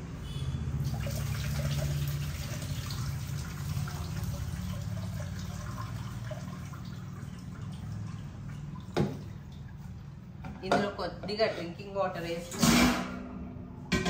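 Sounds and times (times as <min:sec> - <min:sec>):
tap water splashing into metal pot: 0:00.8 - 0:09.8.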